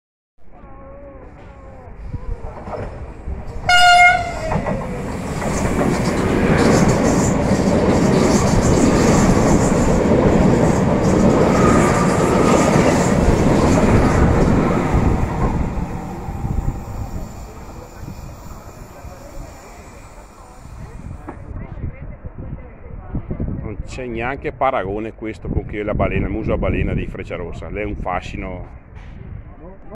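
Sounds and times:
train rushing past: 2.1 - 21.5
train horn blast: 3.7 - 4.6.

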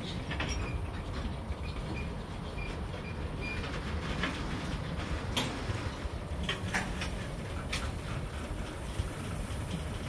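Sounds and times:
metallic clanks and squeaks: 0.0 - 7.8
train wheels rumbling on rail: 0.0 - 10.0.

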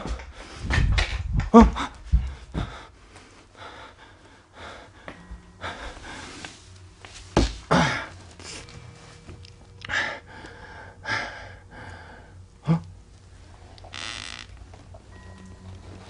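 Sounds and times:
man breathing hard and gasping: 1.6 - 6.5, 9.8 - 12.9.

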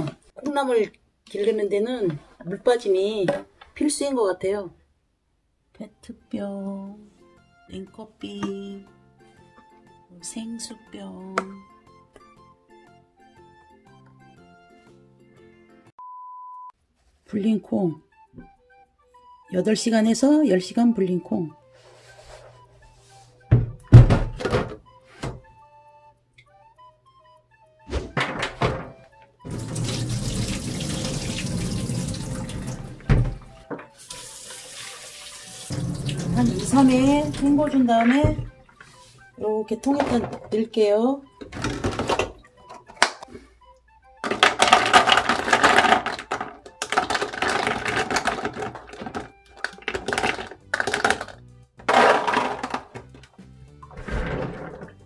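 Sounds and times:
faint background music: 0.0 - 5.0, 5.6 - 15.9, 16.8 - 55.0
water pouring into sink: 29.5 - 33.2, 34.0 - 38.3
tap running: 35.6 - 38.6
soybeans rattling in plastic bottle: 44.2 - 53.0.

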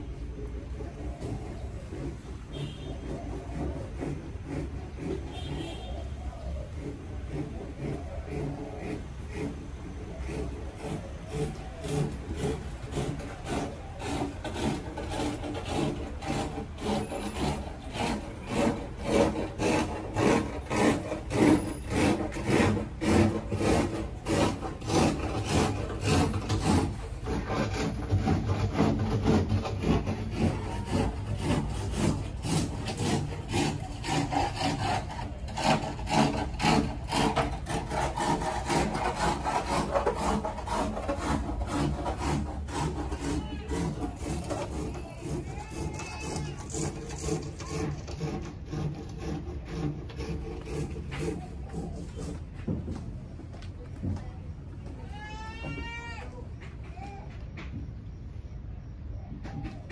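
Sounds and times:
rhythmic scraping strokes: 0.0 - 53.0.

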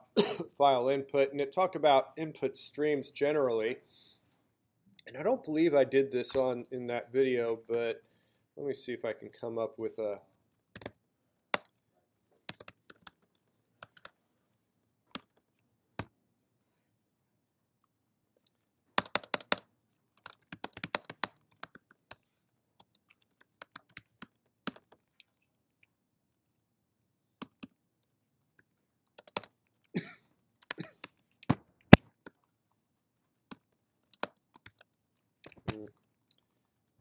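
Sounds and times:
typing on computer keyboard: 10.7 - 11.8, 12.4 - 15.4, 18.5 - 25.5, 29.1 - 30.0, 33.4 - 36.4.

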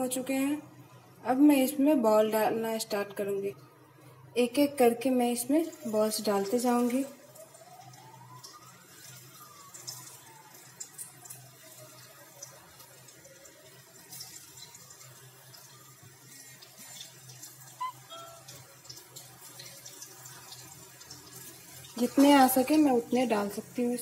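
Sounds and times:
deep-frying sizzle with pops: 2.6 - 24.0.

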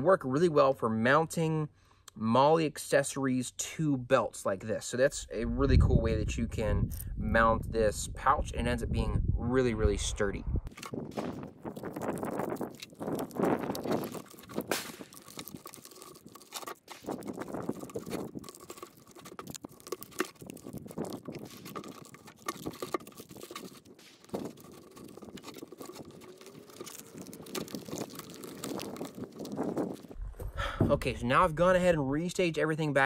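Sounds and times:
plastic packets crinkling: 10.7 - 30.2.

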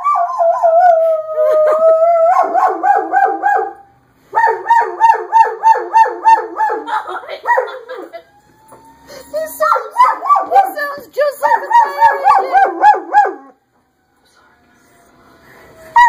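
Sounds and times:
dog howling: 7.5 - 10.8, 11.4 - 13.6
fire engine siren recording: 8.0 - 9.5.

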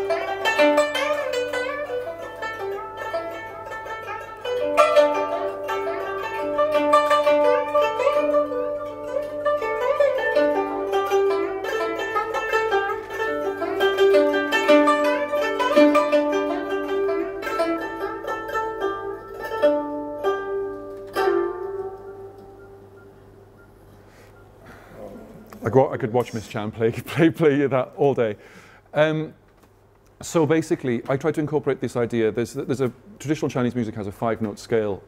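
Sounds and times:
plucked zither: 0.0 - 23.0.

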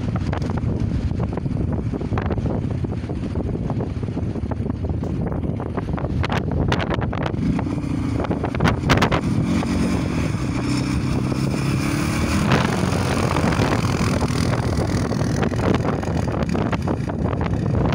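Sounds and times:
quad bike engine passing: 0.0 - 17.9
wind buffeting microphone: 0.0 - 17.9.

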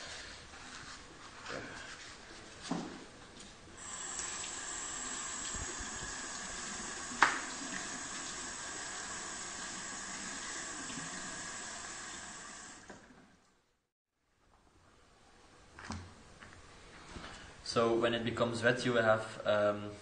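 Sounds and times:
tap water splashing on cardboard: 5.4 - 8.4.

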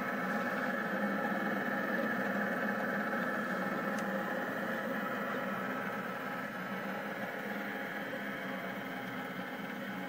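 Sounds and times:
printer stepper motors whining: 0.0 - 10.0.

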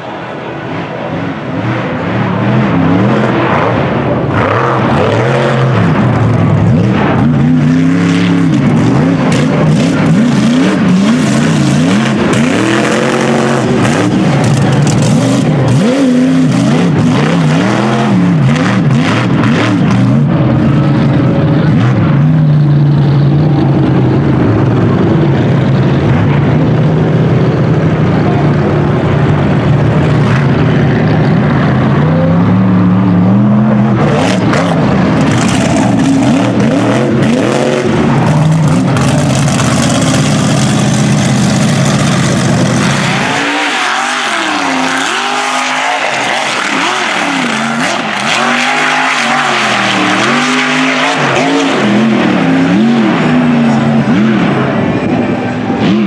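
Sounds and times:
engine crackles: 0.0 - 56.0
truck engine revving: 0.0 - 56.0.

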